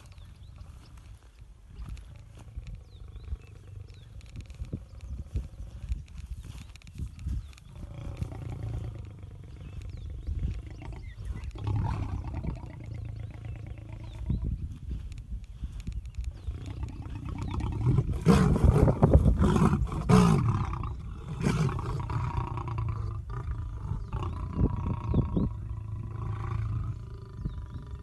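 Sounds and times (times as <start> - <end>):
lion growling: 7.7 - 14.4, 16.4 - 28.0.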